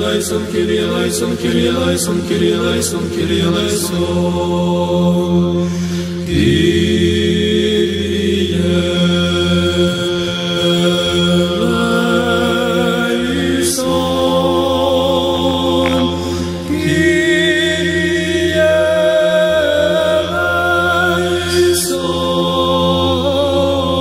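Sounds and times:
low held vocal drone: 0.0 - 24.0
voices singing chant: 0.0 - 24.0.

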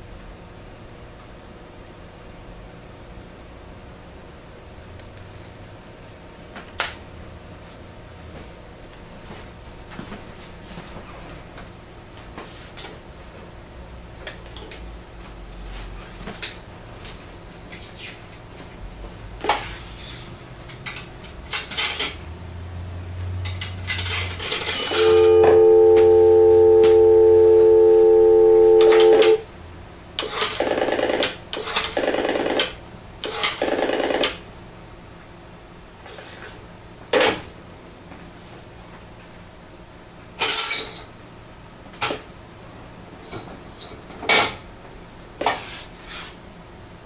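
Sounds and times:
two-tone dial tone: 24.8 - 29.4.

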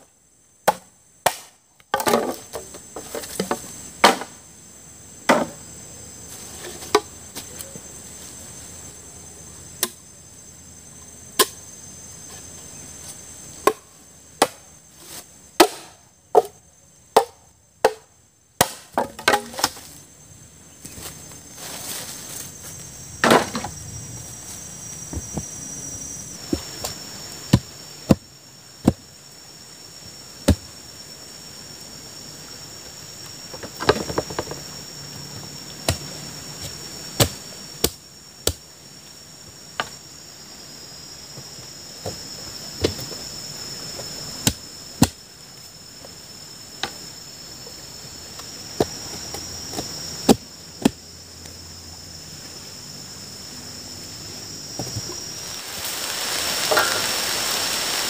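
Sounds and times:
wood being chopped: 0.7 - 2.4, 3.4 - 4.3, 14.4 - 14.6, 15.6 - 16.6, 17.2 - 19.8.

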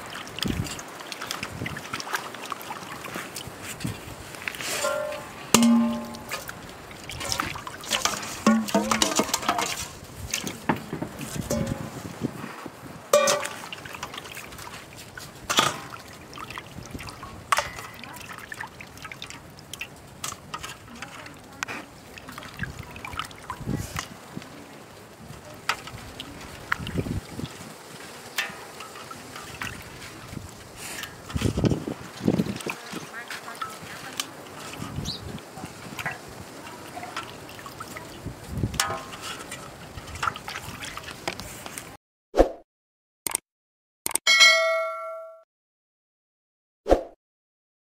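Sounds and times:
water sloshing and trickling: 0.0 - 42.0
knocks on steel bowl: 4.8 - 6.4.

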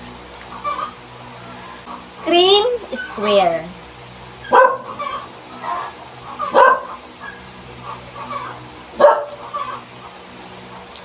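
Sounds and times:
dog barking: 4.5 - 5.0, 6.5 - 7.0, 9.0 - 9.4.

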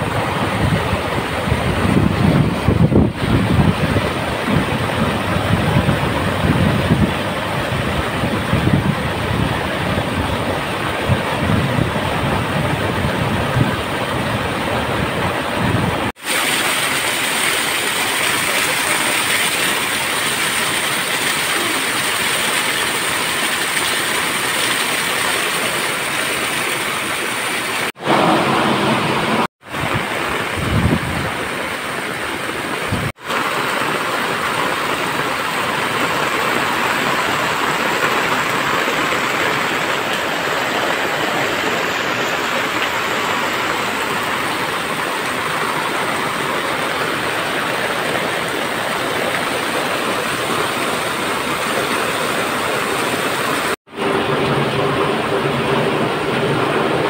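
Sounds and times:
pouring rain: 0.0 - 57.0
torrent surging over rocks: 0.0 - 57.0
water cascading down stone steps: 0.0 - 57.0.

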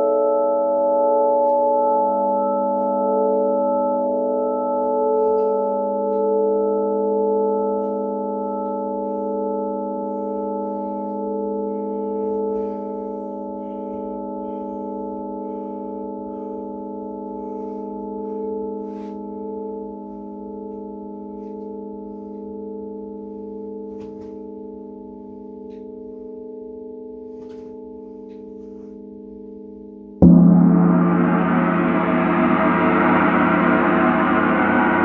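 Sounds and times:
struck metal instrument ringing: 0.0 - 35.0
gong struck with mallet: 30.2 - 35.0.

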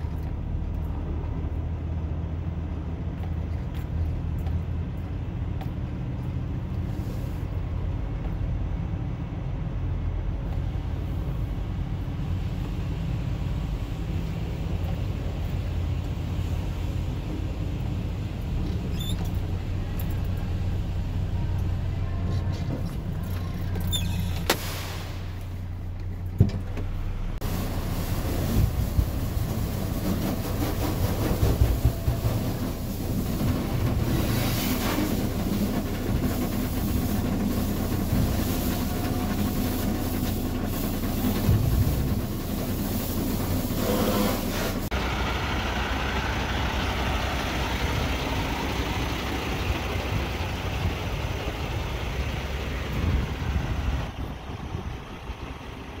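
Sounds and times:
diesel engine idling: 0.0 - 56.0
water spray pounding on windshield: 24.4 - 25.6, 27.4 - 44.9.

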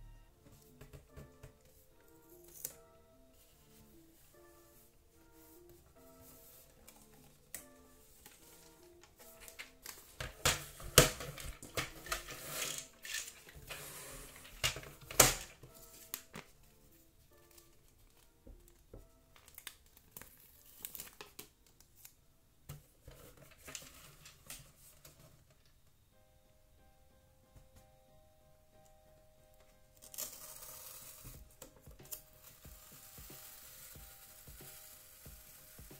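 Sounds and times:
faint background music: 0.0 - 35.9
paper label peeling: 2.4 - 2.8, 30.0 - 35.8.

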